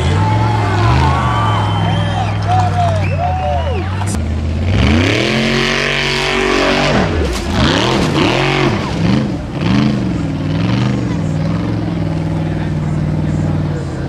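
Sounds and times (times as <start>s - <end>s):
buggy engine revving: 0.0s - 14.0s.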